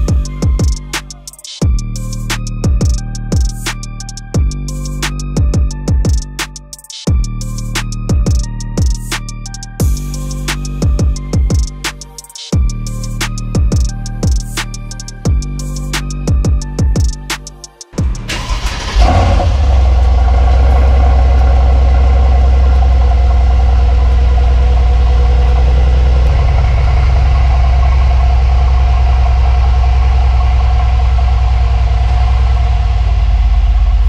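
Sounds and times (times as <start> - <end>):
car engine starting and idling: 18.0 - 34.0.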